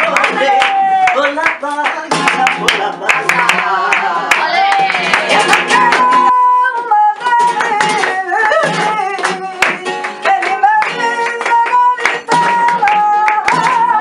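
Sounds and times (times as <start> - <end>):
flamenco guitar: 0.0 - 14.0
hand-clapping: 0.0 - 14.0
woman singing: 3.5 - 14.0.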